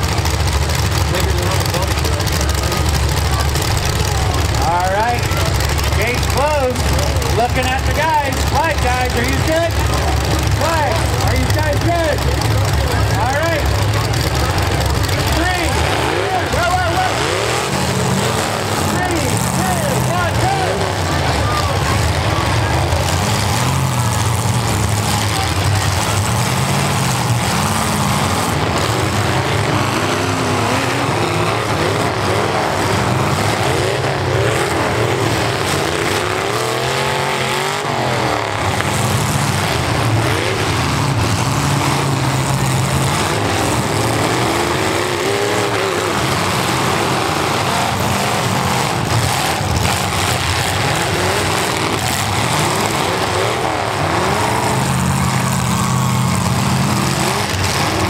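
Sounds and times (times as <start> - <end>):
car engines revving: 0.0 - 58.0.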